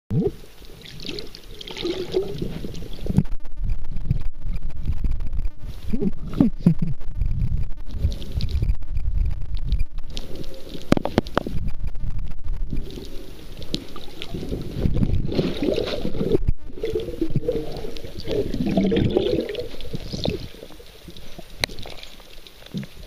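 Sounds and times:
gurgles and bubbles: 0:00.1 - 0:03.3, 0:12.7 - 0:23.0
underwater water rumble: 0:00.2 - 0:23.0.

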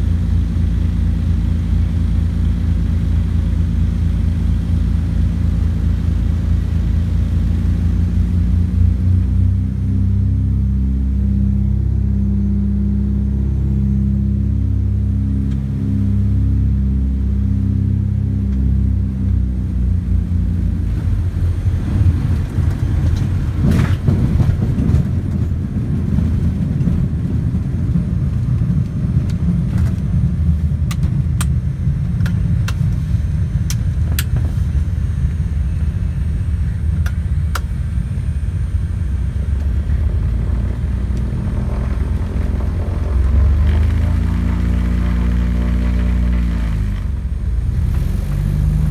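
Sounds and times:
piston engines droning: 0:00.0 - 0:48.9
wheels rumbling on gravel: 0:19.9 - 0:36.9, 0:38.0 - 0:48.9.

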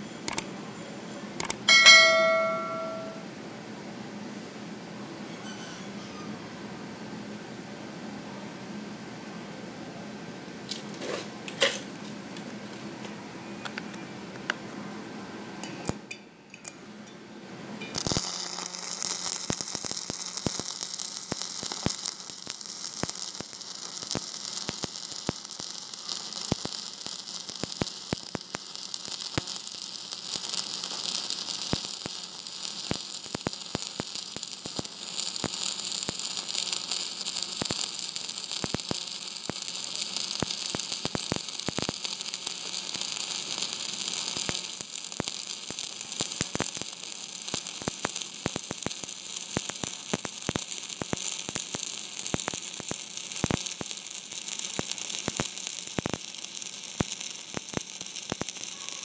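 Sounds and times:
welding arc popping: 0:01.4 - 0:03.2, 0:18.0 - 0:59.0
arc welding crackling and hissing: 0:17.9 - 0:59.0.

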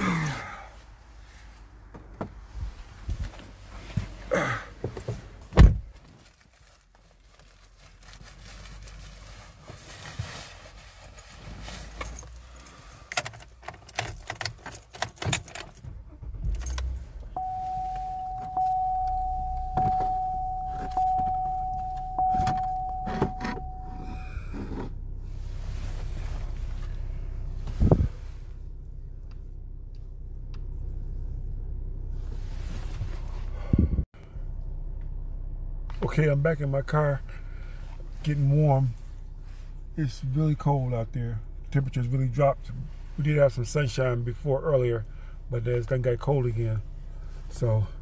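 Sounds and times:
car keys jangling: 0:11.8 - 0:24.8
car warning chime: 0:16.8 - 0:24.5.

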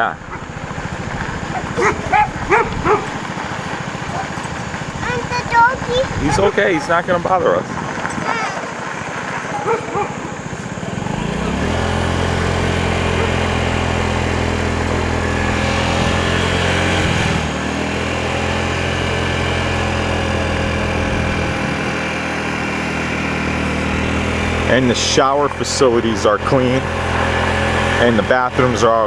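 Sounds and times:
vehicle engine running: 0:00.0 - 0:29.0.

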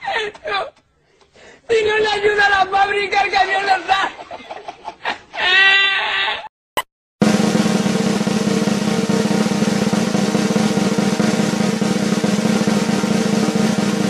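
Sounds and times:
snare drum roll: 0:07.2 - 0:14.0.

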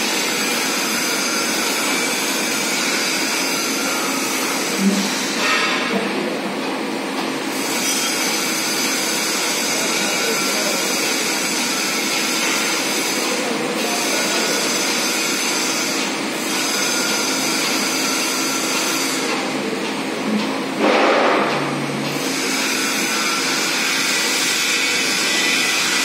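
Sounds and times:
conveyor motor whining hum: 0:06.0 - 0:20.8.

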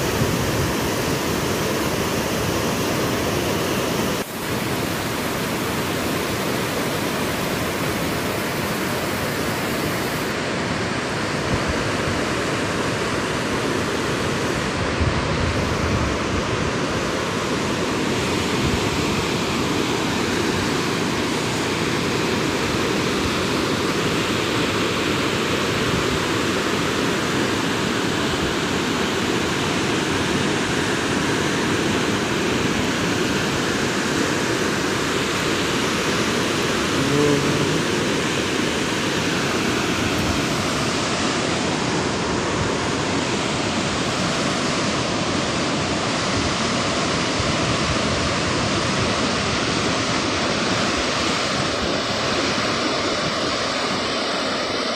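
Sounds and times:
river rapids roaring: 0:00.0 - 0:54.9
brief low-pitched sound: 0:37.0 - 0:38.1.

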